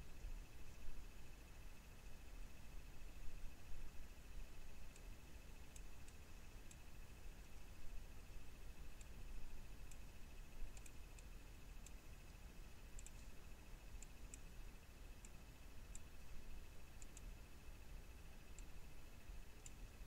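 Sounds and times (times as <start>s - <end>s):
faint high whine: 0.0s - 20.0s
computer mouse clicks: 4.6s - 6.9s, 8.7s - 17.5s, 18.1s - 20.0s.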